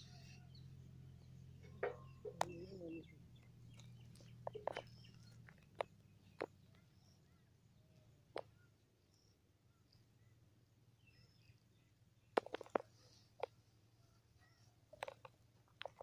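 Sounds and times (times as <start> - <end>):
bird chirps: 0.0 - 10.4.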